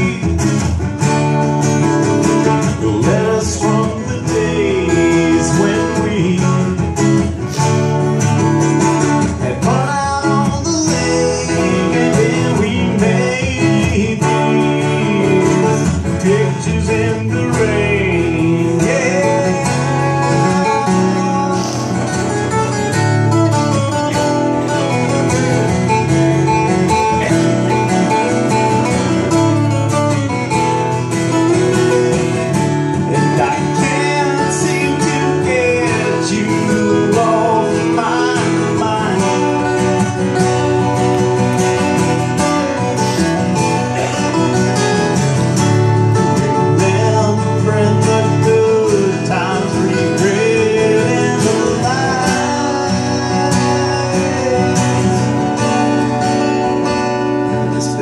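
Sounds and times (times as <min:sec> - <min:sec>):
man singing: 0:00.0 - 0:25.1, 0:26.4 - 0:56.6, 0:57.4 - 0:58.0
acoustic guitars strummed: 0:00.0 - 0:58.0.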